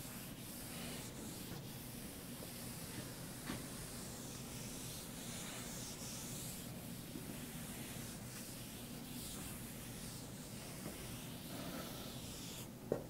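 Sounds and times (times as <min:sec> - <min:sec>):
eraser rubbing on chalkboard: 0:00.0 - 0:12.7.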